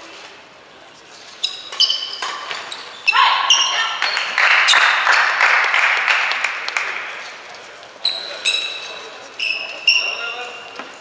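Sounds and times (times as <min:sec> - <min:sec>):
shoes squeaking on sports floor: 0:01.0 - 0:04.3, 0:07.9 - 0:11.0
racket hitting shuttlecock: 0:01.7 - 0:02.7
people clapping: 0:04.0 - 0:07.6.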